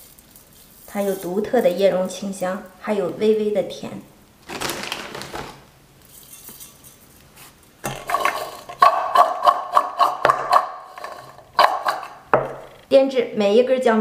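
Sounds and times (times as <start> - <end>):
fried snacks rattling in bowl: 4.4 - 5.6.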